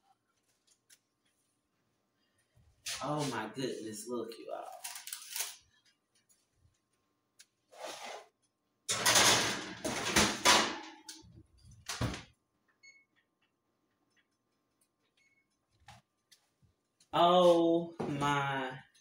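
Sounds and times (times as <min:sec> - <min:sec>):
oven scraping noise: 0:07.7 - 0:08.3.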